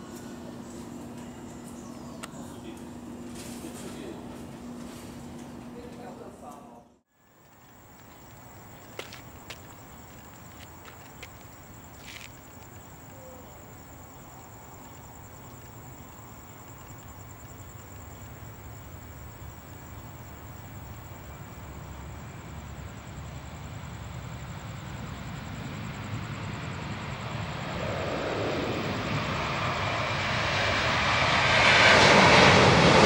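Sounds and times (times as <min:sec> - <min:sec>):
night insects trilling: 0:07.1 - 0:33.0
jet engines rumbling: 0:07.2 - 0:33.0.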